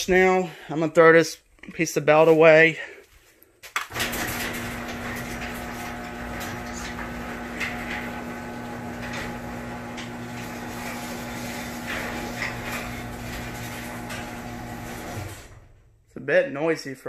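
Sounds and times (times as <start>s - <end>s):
garage door clicks and rattles: 3.8s - 16.0s
garage door motor hum: 3.9s - 16.0s.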